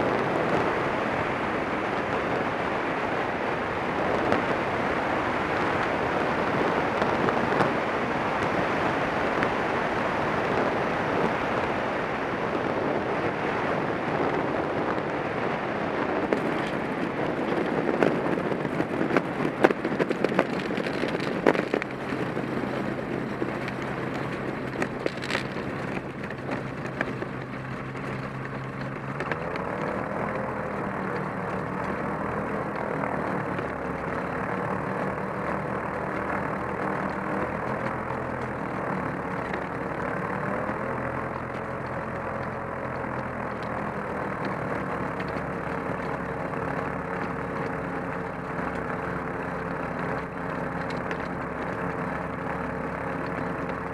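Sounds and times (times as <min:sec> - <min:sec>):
small plane engine running: 0:00.0 - 0:53.9
rattles and knocks from rough ground: 0:16.2 - 0:53.9.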